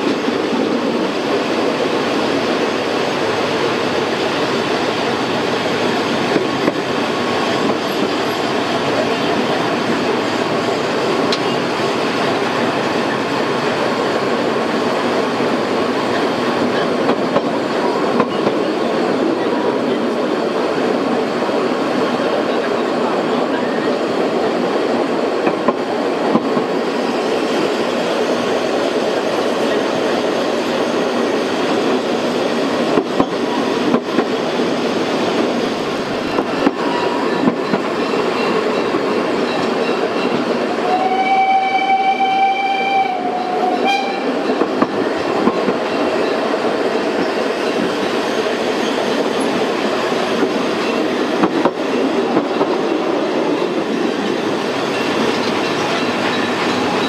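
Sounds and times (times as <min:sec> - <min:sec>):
rail clatter of carriages: 0:00.0 - 0:57.0
steam train running: 0:00.0 - 0:57.0
steam whistle blasts: 0:40.8 - 0:44.4.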